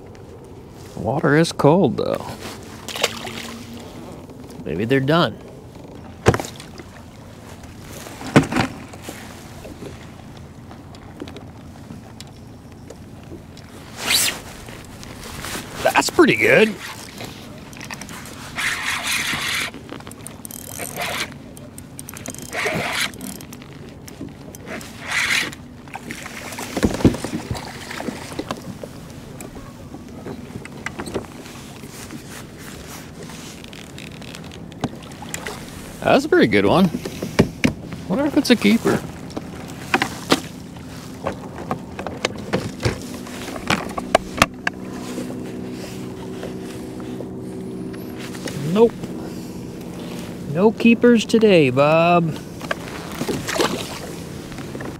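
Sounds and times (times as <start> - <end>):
steady low hum: 0.0 - 54.9
water against hull: 0.0 - 54.9
fishing reel cranking: 18.6 - 23.6.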